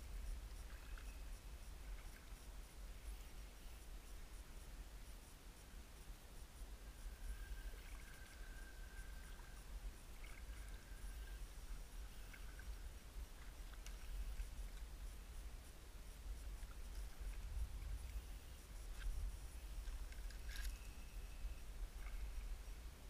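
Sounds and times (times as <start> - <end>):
thin steady high tone: 0.0 - 23.0
paddle scratching and ticks: 16.4 - 18.2, 18.8 - 21.2.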